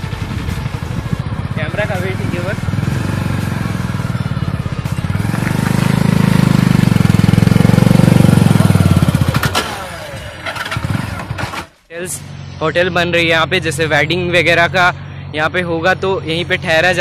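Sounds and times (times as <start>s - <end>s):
motorcycle engine running: 0.0s - 11.7s.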